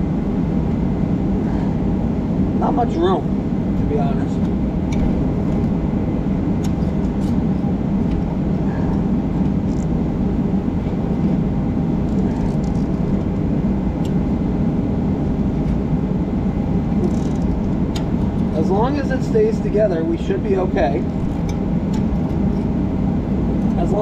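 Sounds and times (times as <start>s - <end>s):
low mechanical rumble: 0.0s - 24.0s.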